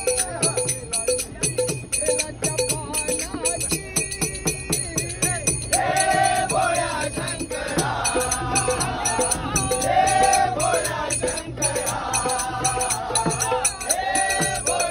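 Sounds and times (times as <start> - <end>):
hand cymbals clashing: 0.0 - 14.9
hand drum: 0.0 - 14.9
man singing: 0.0 - 14.9.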